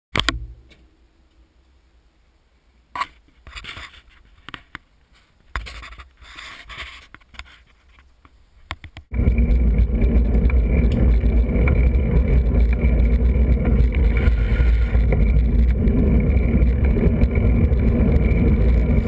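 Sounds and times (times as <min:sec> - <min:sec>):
handling scraping and rubbing: 0:09.1 - 0:19.0.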